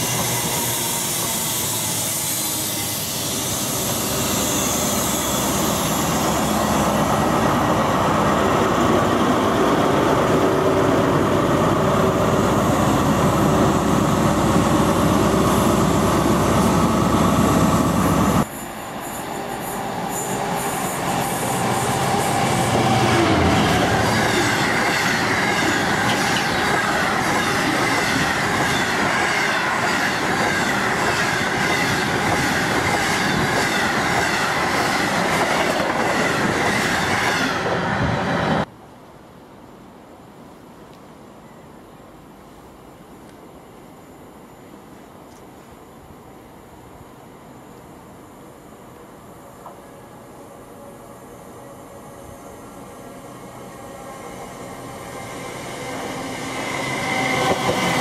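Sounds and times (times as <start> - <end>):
high wheel squeal: 0.0 - 7.1, 17.2 - 35.2
diesel locomotive engine: 0.0 - 38.7, 41.4 - 58.0.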